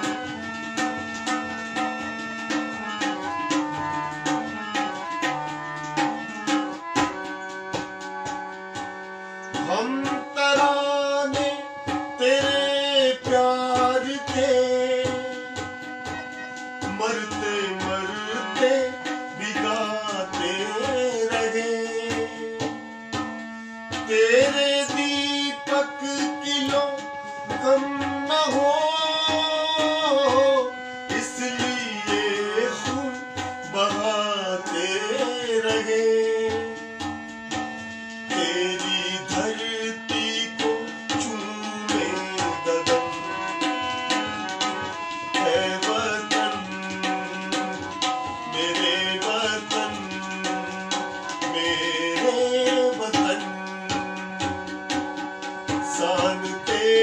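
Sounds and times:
harmonium notes: 0:00.0 - 0:57.0
tabla rhythm: 0:00.0 - 0:57.0
man singing: 0:09.6 - 0:22.8, 0:24.0 - 0:36.9, 0:38.3 - 0:44.3, 0:45.3 - 0:54.5, 0:55.8 - 0:57.0.

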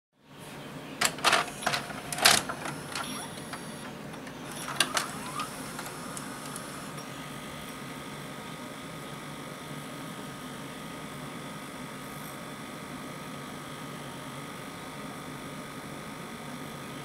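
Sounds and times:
motor whine and hum: 0:00.6 - 0:17.0
cassette loading clicks and clunks: 0:01.0 - 0:07.0.

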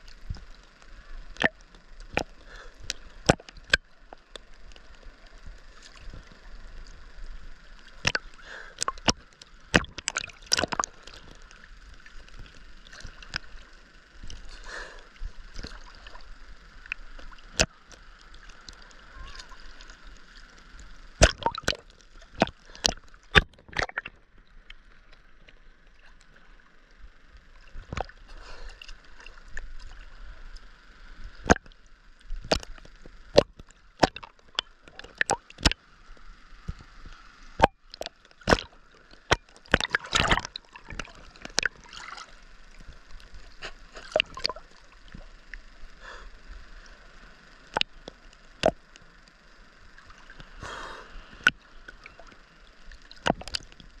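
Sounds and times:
sea water sloshing and splashing: 0:00.0 - 0:26.7, 0:27.5 - 0:35.8, 0:36.6 - 0:46.2, 0:49.7 - 0:54.0.

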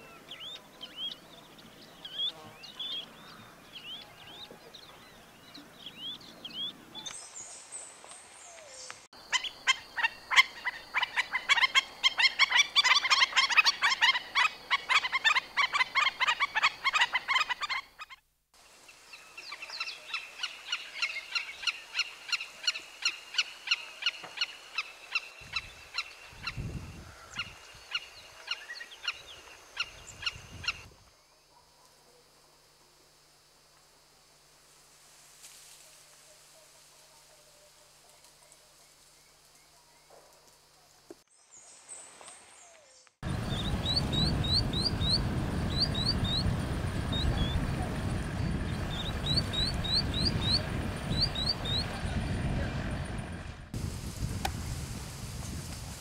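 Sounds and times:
sharp repeated bird calls: 0:08.8 - 0:18.2, 0:43.2 - 0:52.1
faint bird chirping: 0:40.8 - 0:52.2.

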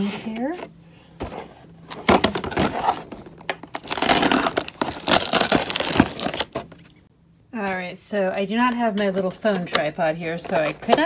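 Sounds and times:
plastic packaging crinkling: 0:03.6 - 0:07.0.

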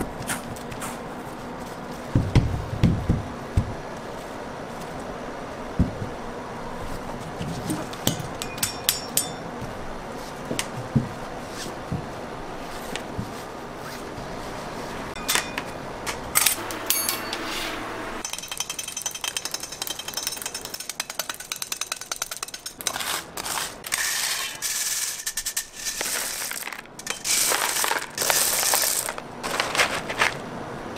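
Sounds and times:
blade chopping candy on steel: 0:18.2 - 0:29.2
hard candy pieces rattling: 0:24.7 - 0:30.4.

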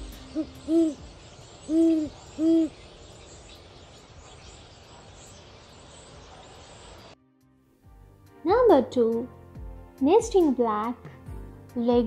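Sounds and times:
owl hooting: 0:00.0 - 0:03.7.

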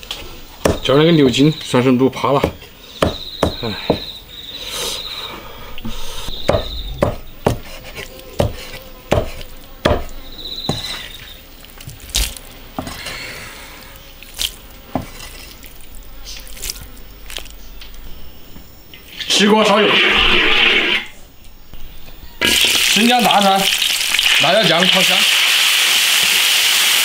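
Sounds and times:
insects chirping: 0:00.0 - 0:27.0
cleaver knocking on chopping block: 0:00.6 - 0:00.9, 0:02.4 - 0:04.0, 0:06.4 - 0:07.7, 0:08.4 - 0:10.1.

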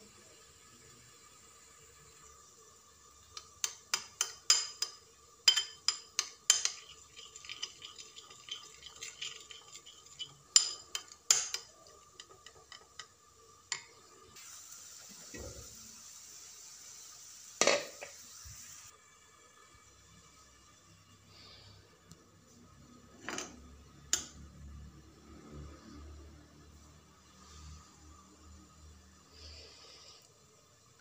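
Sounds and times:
potato frying in a pan: 0:00.0 - 0:21.5
spoon clinking against glass bowl: 0:03.4 - 0:12.8
spoon scraping bowl: 0:03.7 - 0:13.1.

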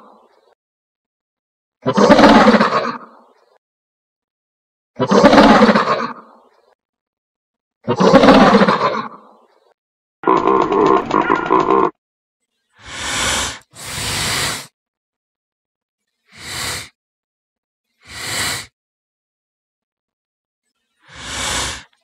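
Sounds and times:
short breathy hisses: 0:12.8 - 0:14.7, 0:16.3 - 0:17.0, 0:18.0 - 0:18.7, 0:21.0 - 0:22.0.

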